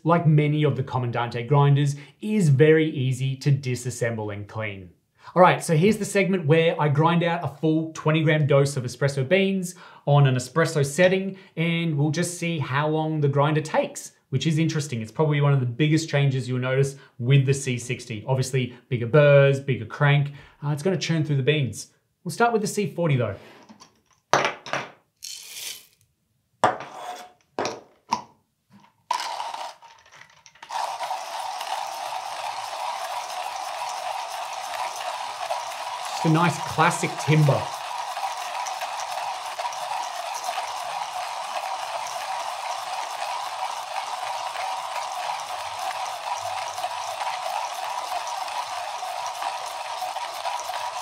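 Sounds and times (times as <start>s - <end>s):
coffee beans rattling: 25.2s - 26.0s, 29.1s - 51.0s
hand grinder grinding: 25.2s - 26.0s, 29.1s - 51.0s.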